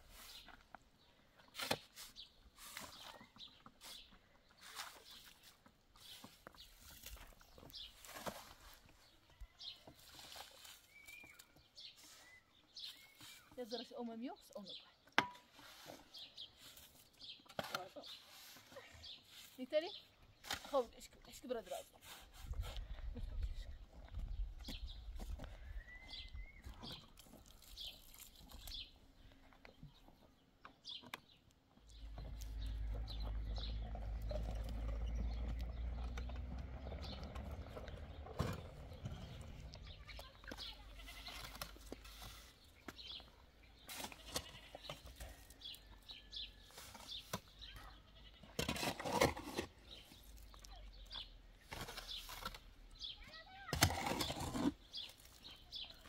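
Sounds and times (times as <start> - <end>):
goats bleating: 40.7 - 41.5.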